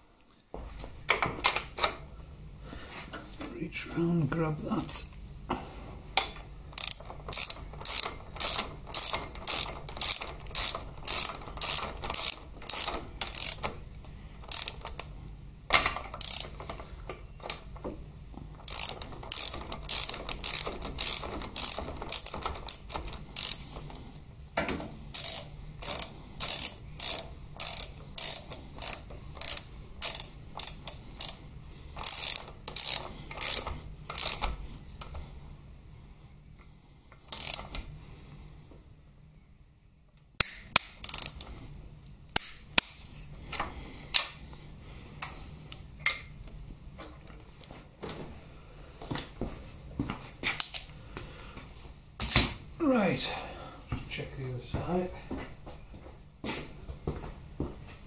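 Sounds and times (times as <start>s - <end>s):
ratchet wrench clicking: 6.8s - 13.8s, 14.4s - 15.1s, 16.1s - 16.6s, 18.6s - 23.7s, 25.1s - 31.4s, 32.0s - 35.2s, 37.3s - 37.8s, 40.4s - 41.5s.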